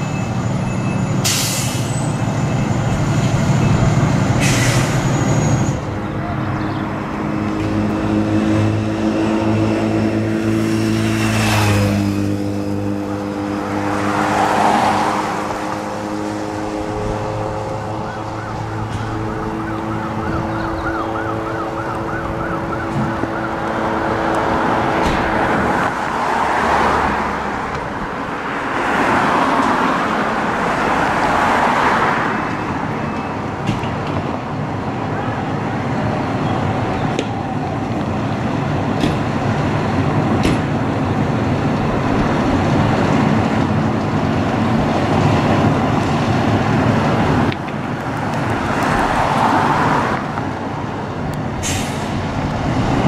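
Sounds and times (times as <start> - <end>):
passing traffic: 0.0 - 53.0
siren warbling: 16.8 - 24.2.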